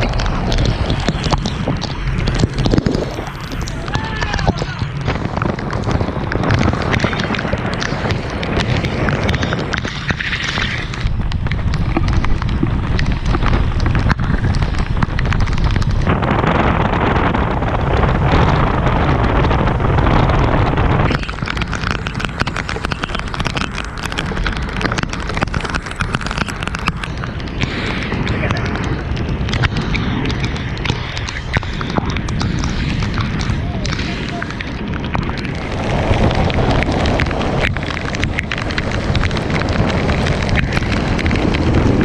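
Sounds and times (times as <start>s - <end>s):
rain and water noise: 0.0s - 42.0s
wind buffeting microphone: 0.0s - 42.0s
small ticks: 21.1s - 42.0s.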